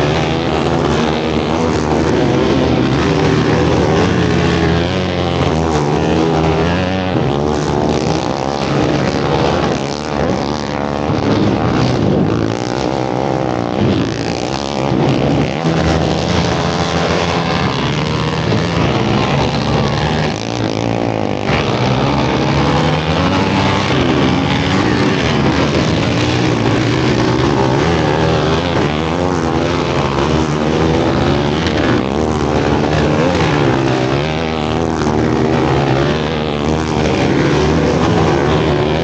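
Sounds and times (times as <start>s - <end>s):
racing quad engines revving: 0.0s - 39.0s.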